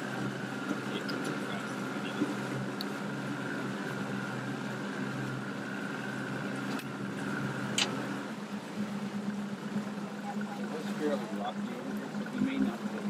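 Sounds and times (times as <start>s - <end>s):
boat motor idling: 0.0s - 13.0s.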